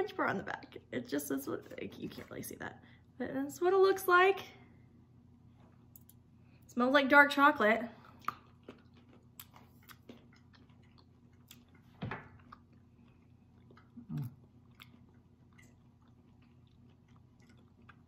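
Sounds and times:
chewing chocolate: 8.1 - 18.0
person humming: 14.0 - 14.4.

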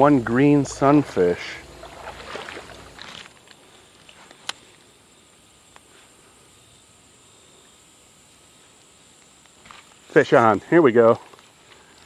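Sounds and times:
footsteps on gravel and leaves: 1.6 - 4.4.

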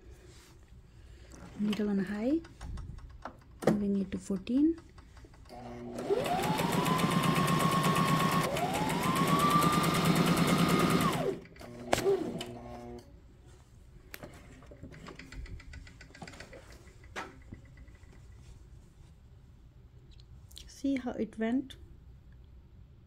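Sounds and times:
sewing machine sewing: 5.5 - 13.1.

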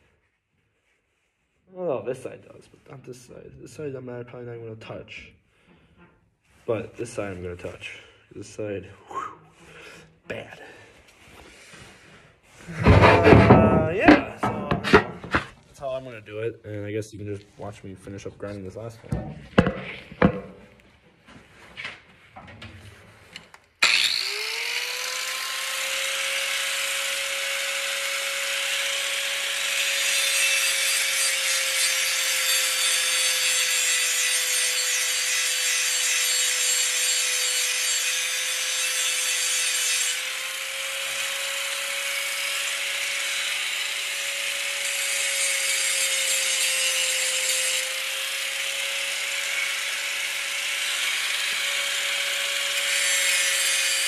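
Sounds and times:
angle grinder grinding steel: 12.7 - 15.5, 23.8 - 54.0.

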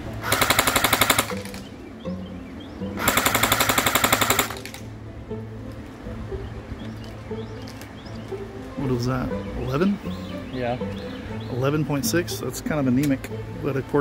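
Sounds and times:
airsoft gun full-auto bursts: 0.2 - 1.6, 3.0 - 4.8.

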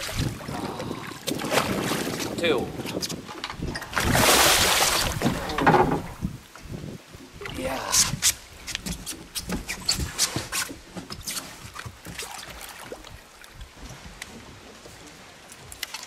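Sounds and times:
fish splashing at water surface: 3.9 - 5.4.

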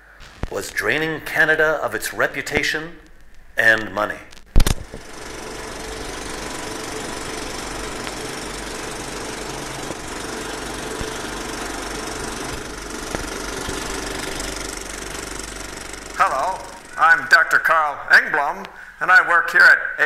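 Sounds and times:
film projector running: 4.6 - 18.6.

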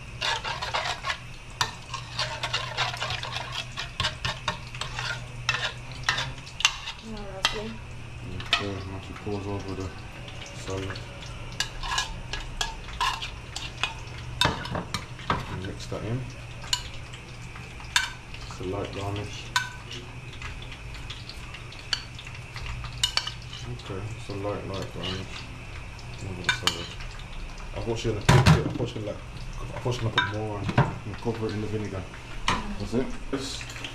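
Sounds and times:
metal utensils clinking on pots: 0.2 - 9.5, 11.6 - 15.9, 17.8 - 20.5, 21.8 - 23.8, 24.4 - 25.4, 26.4 - 27.1, 29.7 - 31.7.

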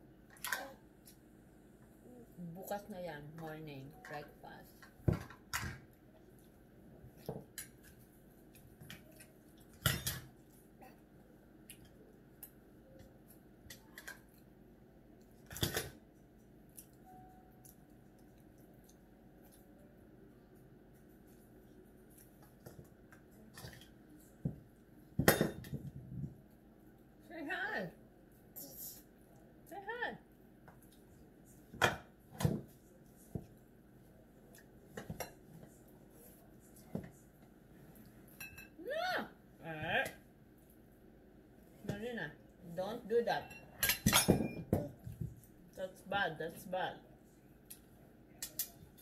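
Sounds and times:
dishes and cutlery clinking: 8.8 - 10.5, 15.4 - 16.0, 25.2 - 26.0, 38.3 - 38.8, 43.4 - 45.2.

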